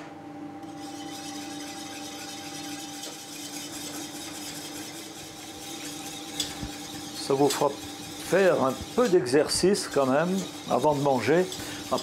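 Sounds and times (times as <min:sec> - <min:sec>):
utensil scraping a saucepan: 0:00.6 - 0:12.0.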